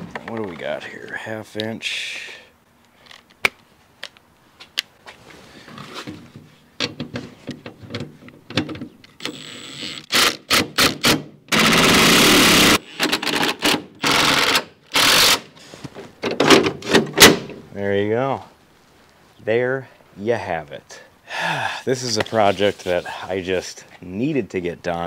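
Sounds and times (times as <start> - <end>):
impact driver rattling: 6.8 - 15.5.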